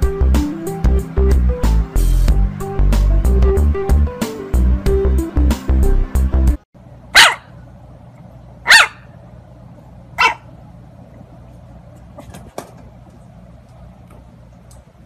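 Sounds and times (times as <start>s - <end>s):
puppy barking: 7.1s - 7.6s, 8.6s - 9.2s, 10.2s - 10.5s.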